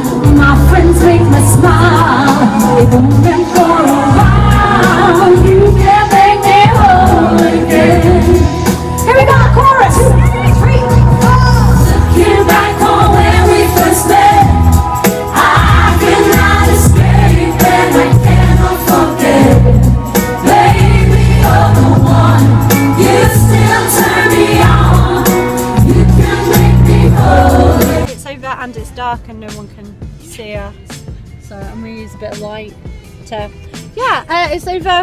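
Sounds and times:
female vocal group singing: 0.0s - 28.1s
pop backing track with bass: 0.0s - 35.0s.

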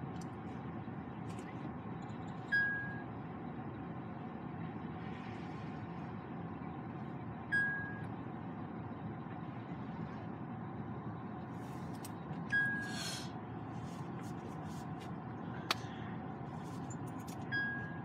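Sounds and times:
car engine and tyres rumbling: 0.0s - 18.0s
short high beep: 12.5s - 13.0s.

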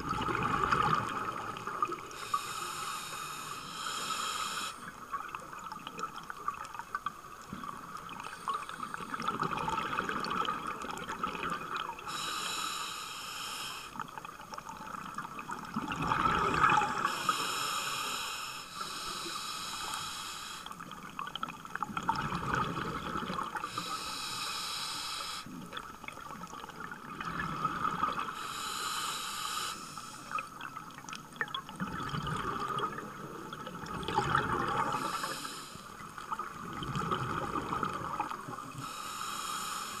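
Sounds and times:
bubbling exhale underwater: 0.0s - 2.2s, 14.8s - 17.3s, 21.8s - 23.8s, 31.4s - 35.3s, 36.3s - 38.9s
regulator hissing inhale: 1.8s - 5.0s, 12.1s - 14.1s, 16.8s - 20.8s, 23.6s - 25.6s, 28.3s - 30.5s, 34.8s - 36.2s, 38.8s - 40.0s.

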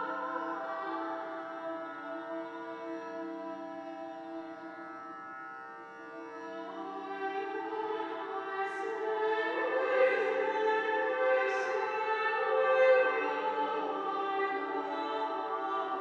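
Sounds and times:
women's choir singing: 0.0s - 1.8s, 6.7s - 16.0s.

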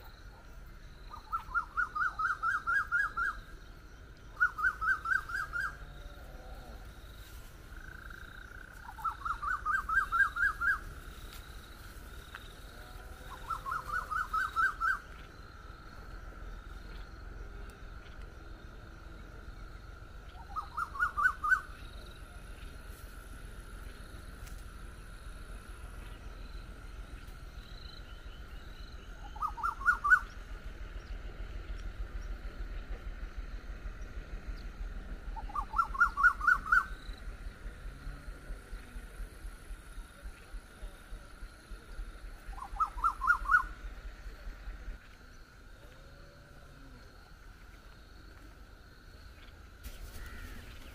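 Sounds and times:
bird calling rising notes: 1.0s - 3.7s, 4.3s - 6.1s, 7.9s - 11.6s, 13.2s - 15.4s, 20.3s - 22.0s, 28.2s - 31.2s, 35.3s - 37.2s, 42.4s - 44.4s.

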